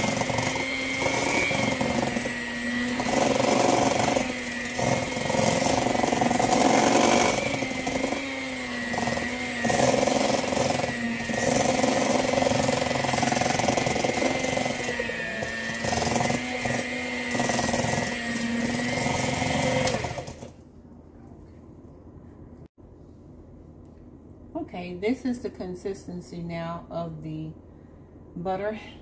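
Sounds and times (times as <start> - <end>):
electric hand mixer whining: 0.0 - 20.6.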